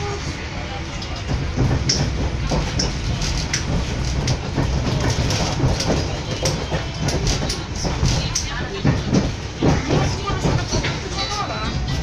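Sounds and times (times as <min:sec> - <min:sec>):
train low rumble: 0:00.0 - 0:12.0
wheels clicking on rails: 0:00.8 - 0:12.0.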